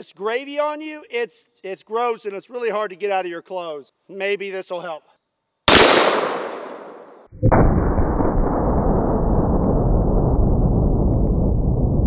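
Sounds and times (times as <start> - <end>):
revolver shot echo: 5.7 - 7.9
deep drawn-out rumble: 7.4 - 12.0.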